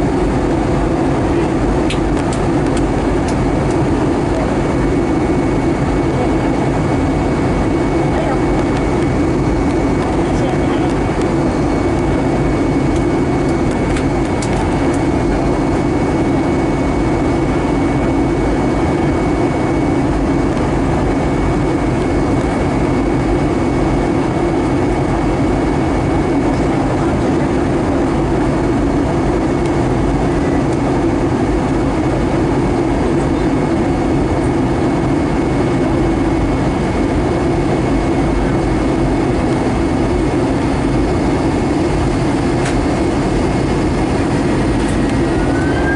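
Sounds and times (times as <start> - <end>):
jet engine and airflow drone: 0.0 - 45.9
faint high whine: 40.1 - 45.9.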